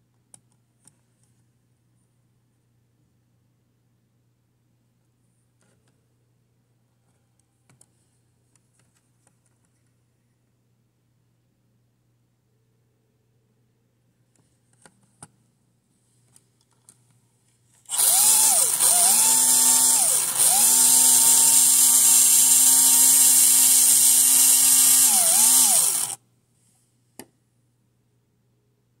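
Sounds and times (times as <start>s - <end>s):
slot car motor whining: 17.9s - 26.2s.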